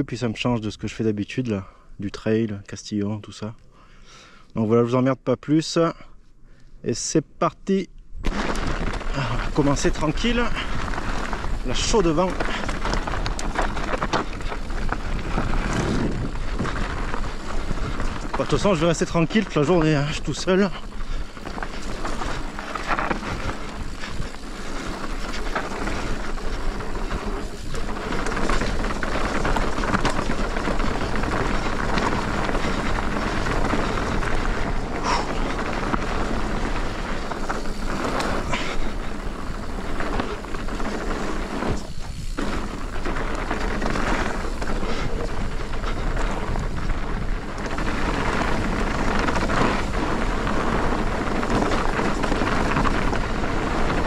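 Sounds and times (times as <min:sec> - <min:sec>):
bike tyres rushing on dirt: 0:07.7 - 0:54.0
bike knocking over bumps: 0:08.2 - 0:54.0
wind on microphone: 0:12.4 - 0:18.4.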